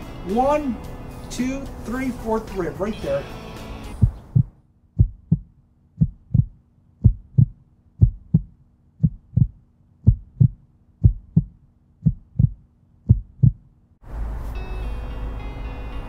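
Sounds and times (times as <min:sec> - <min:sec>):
heartbeat through stethoscope: 0:04.0 - 0:13.7.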